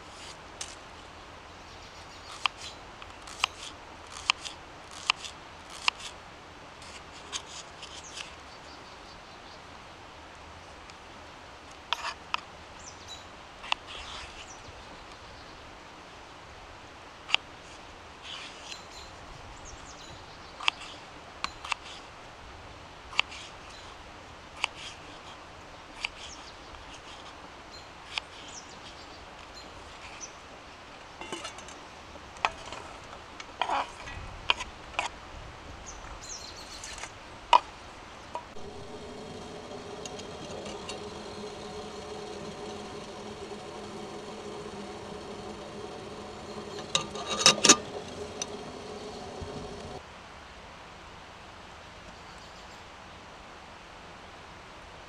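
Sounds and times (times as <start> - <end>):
kettle buzzing hum: 38.4 - 50.0.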